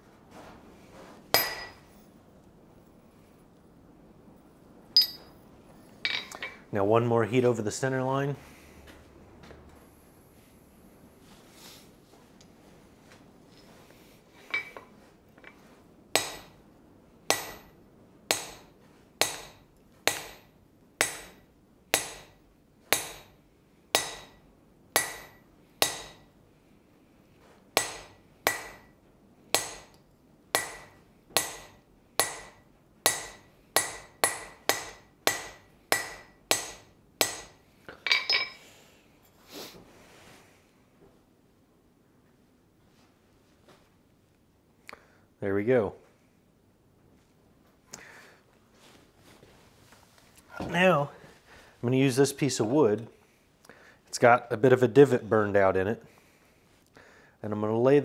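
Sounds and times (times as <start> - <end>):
hammer striking chisel on steel: 1.3 - 1.9, 5.0 - 5.3, 16.1 - 16.6, 17.3 - 24.4, 25.0 - 26.3, 27.8 - 30.0, 30.6 - 38.6.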